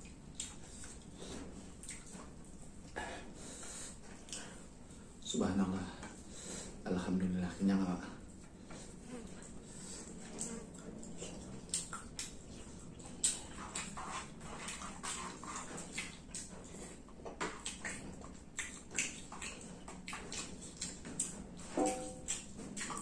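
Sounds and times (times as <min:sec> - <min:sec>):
wet chewing and lip-smacking: 0:00.0 - 0:03.0, 0:08.4 - 0:23.0.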